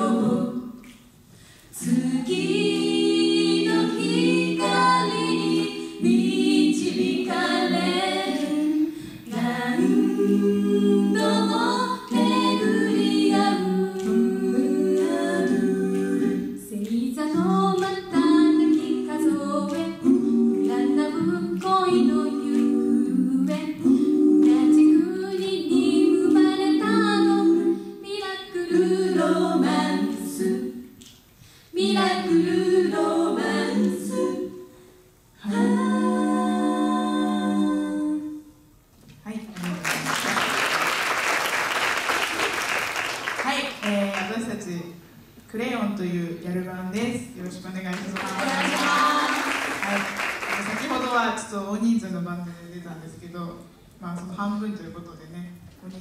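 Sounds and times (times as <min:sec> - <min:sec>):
a cappella group singing in harmony: 0:00.0 - 0:39.0, 0:46.6 - 0:51.5.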